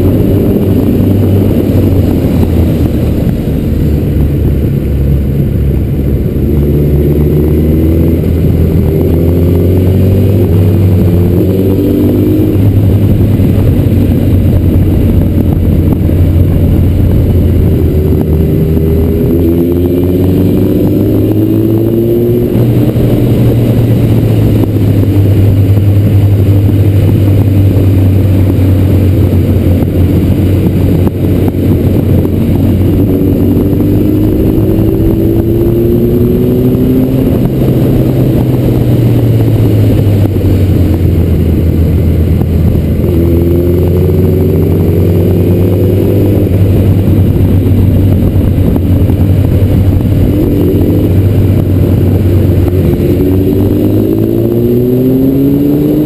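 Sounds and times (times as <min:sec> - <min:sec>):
motorcycle engine revving: 0:00.0 - 0:56.0
wind rumble on microphone: 0:00.0 - 0:56.0.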